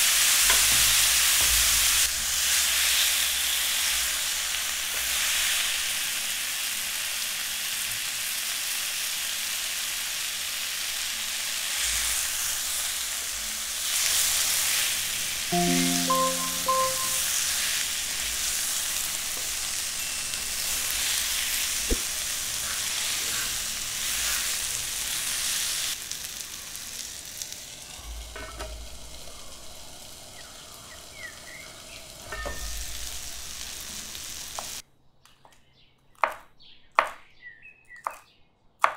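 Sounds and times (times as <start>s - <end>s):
prawns sizzling in a pan: 0.0s - 34.8s
pitched tones: 15.5s - 17.3s.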